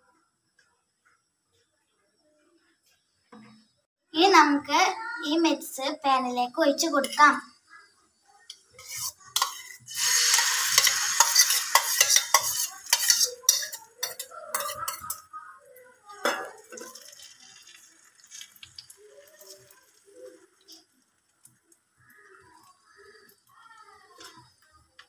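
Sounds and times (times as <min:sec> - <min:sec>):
egg sizzling in hot oil: 0:08.5 - 0:15.2, 0:16.2 - 0:24.6
spoon scraping a steel bowl: 0:08.5 - 0:15.3.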